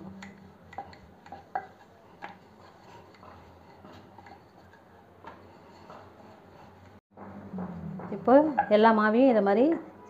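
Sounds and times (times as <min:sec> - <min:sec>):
rolling pin rolling dough: 0:00.1 - 0:07.8.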